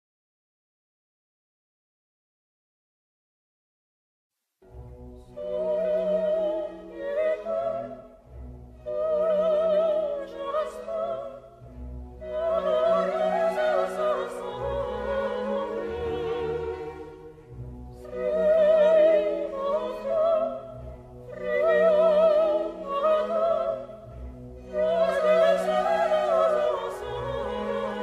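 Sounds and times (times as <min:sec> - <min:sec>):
orchestral accompaniment: 0:04.6 - 0:28.0
opera voice singing with vibrato: 0:05.3 - 0:08.2, 0:08.8 - 0:11.6, 0:12.2 - 0:17.2, 0:18.0 - 0:28.0.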